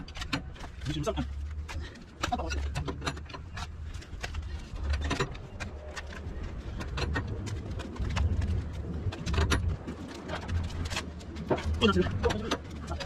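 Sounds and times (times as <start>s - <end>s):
low rumble: 3.5s - 13.0s.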